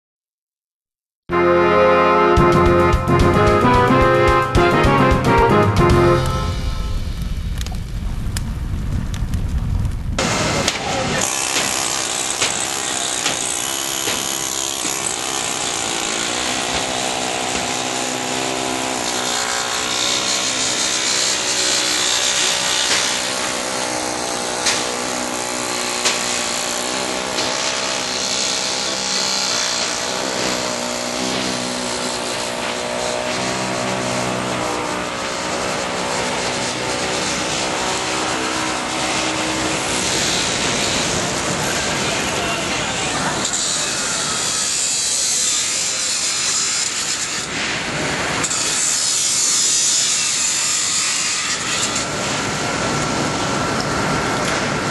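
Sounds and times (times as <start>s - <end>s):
loud wide hiss: 6.4s - 13.1s, 15.6s - 43.9s.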